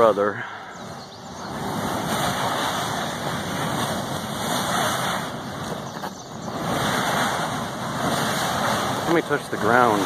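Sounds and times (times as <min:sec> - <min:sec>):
volcanic gas jetting: 0:00.0 - 0:10.0.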